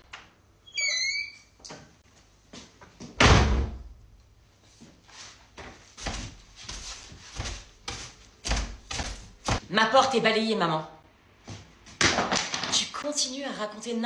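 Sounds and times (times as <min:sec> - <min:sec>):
wooden door shutting with thud: 0:03.2 - 0:03.8.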